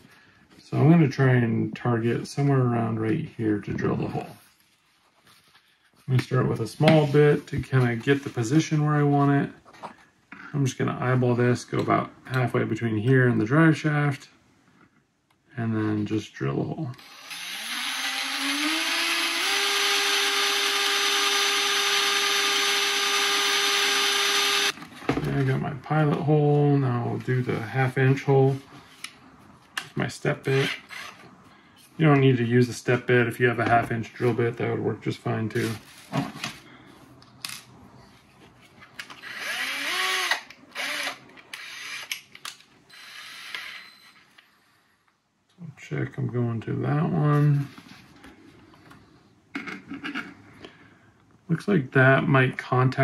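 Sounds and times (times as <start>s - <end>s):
cordless drill whining: 17.0s - 24.8s, 30.6s - 31.3s, 39.1s - 42.2s, 42.9s - 44.3s.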